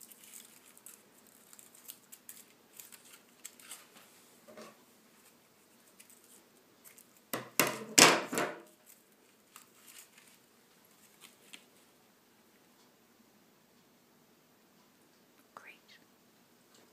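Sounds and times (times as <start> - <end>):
sharp knocks and clatter: 7.4 - 8.7.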